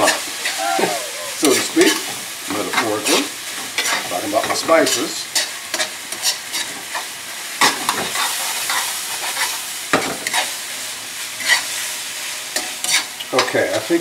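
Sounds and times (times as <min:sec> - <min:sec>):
meat sizzling in a frying pan: 0:00.0 - 0:14.0
metal spoon scraping a pan: 0:04.9 - 0:06.8, 0:12.6 - 0:13.2.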